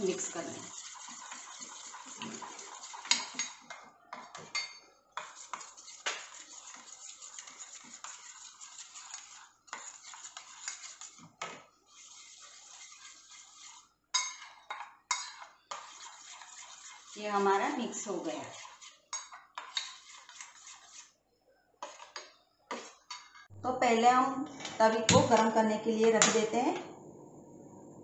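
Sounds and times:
spoon clinking in metal bowl: 0:03.0 - 0:03.8, 0:04.4 - 0:04.9, 0:14.2 - 0:15.5.

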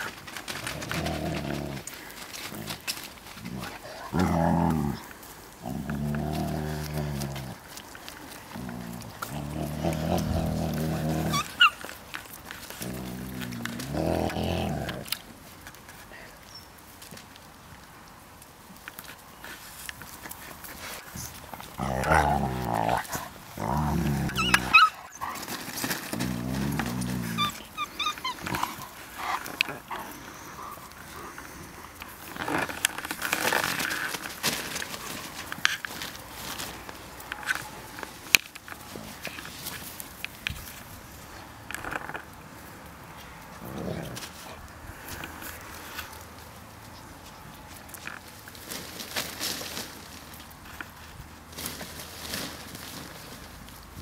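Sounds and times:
dogs play-growling: 0:00.0 - 0:16.1, 0:19.4 - 0:40.5, 0:41.3 - 0:46.2
dog squealing: 0:11.2 - 0:11.9, 0:24.2 - 0:25.4, 0:27.2 - 0:29.4.

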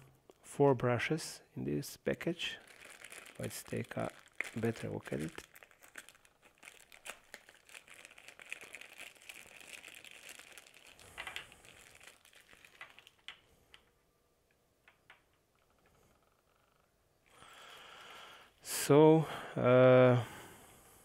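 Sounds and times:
plastic bag crinkling: 0:02.4 - 0:13.9.

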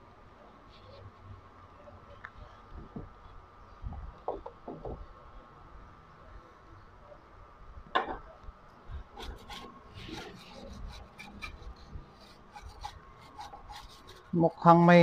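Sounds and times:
brush scrubbing circuit board: 0:09.2 - 0:15.0.

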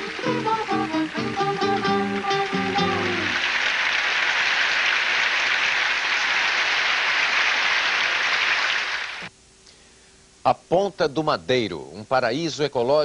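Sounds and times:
audience applauding: 0:00.0 - 0:09.3
faint hum: 0:09.0 - 0:13.0.

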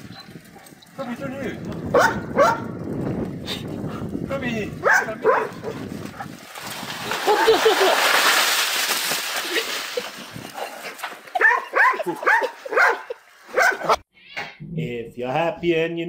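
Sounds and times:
small dog barking: 0:01.9 - 0:02.7, 0:04.8 - 0:05.7, 0:11.4 - 0:14.0
snow sliding off roof: 0:05.8 - 0:13.9.

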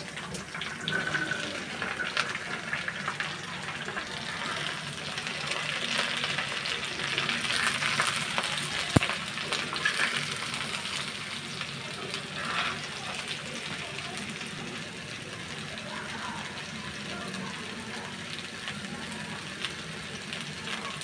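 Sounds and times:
vegetables sizzling in oil: 0:00.0 - 0:21.0
metal spatula scraping a pan: 0:12.2 - 0:13.0.

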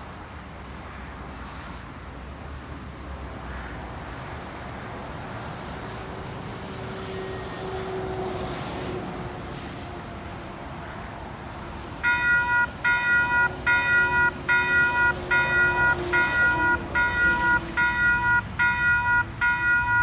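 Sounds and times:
road traffic passing: 0:00.0 - 0:20.0
truck driving by: 0:11.5 - 0:20.0.

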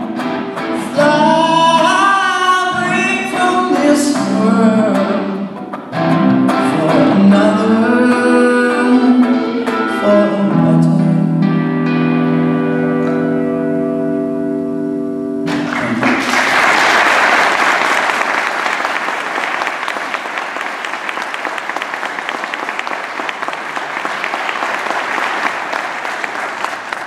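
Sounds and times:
electric guitar chord ringing: 0:08.5 - 0:16.0
audience applause: 0:15.5 - 0:27.0.

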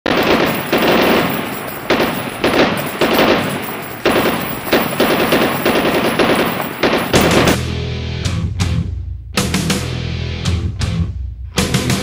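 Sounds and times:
gunshots with echo: 0:00.0 - 0:07.6.

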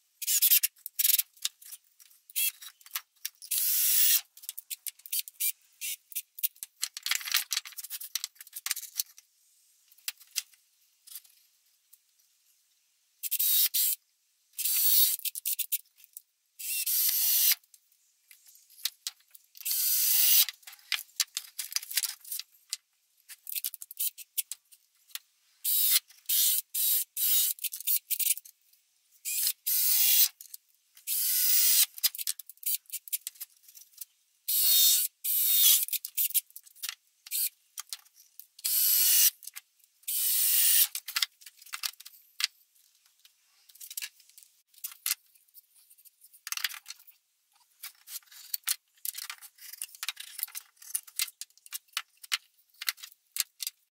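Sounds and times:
cordless drill driving screws: 0:19.6 - 0:20.4, 0:29.3 - 0:30.3, 0:38.6 - 0:39.3, 0:40.1 - 0:40.9.

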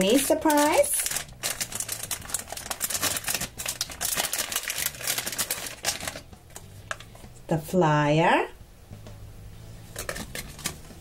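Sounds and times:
foil pouch crinkling: 0:00.0 - 0:07.1.

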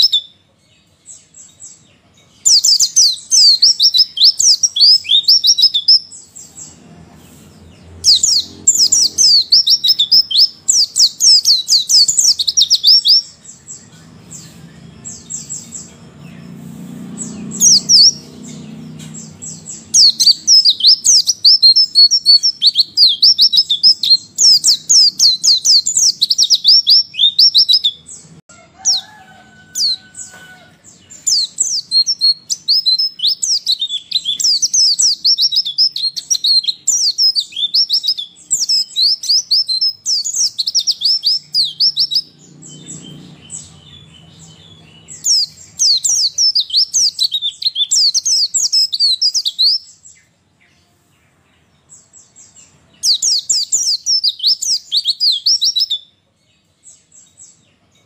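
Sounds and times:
white-eye bird twittering: 0:00.0 - 0:00.3.

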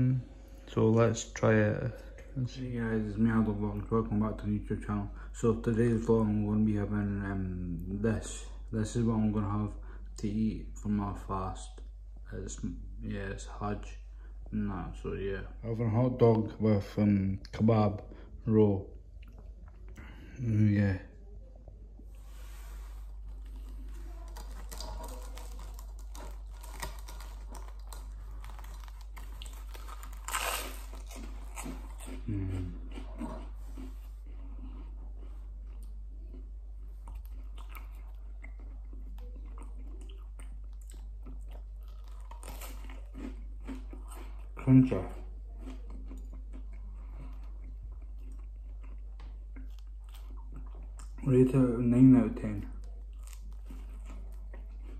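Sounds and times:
steady low hum: 0:00.0 - 0:54.9
person chewing food: 0:19.1 - 0:20.2, 0:22.2 - 0:51.3, 0:52.5 - 0:54.9.

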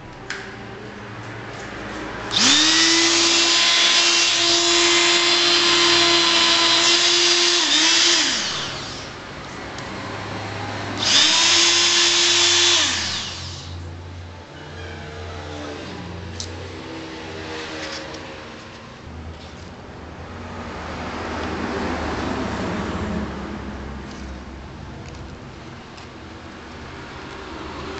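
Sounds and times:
electric sander whining: 0:02.3 - 0:09.2, 0:11.0 - 0:13.8.

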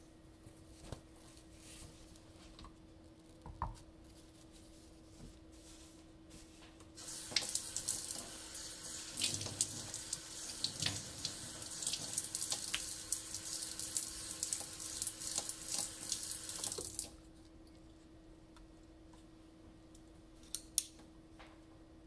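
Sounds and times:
tap water splashing into sink: 0:07.0 - 0:08.4, 0:09.1 - 0:17.2.

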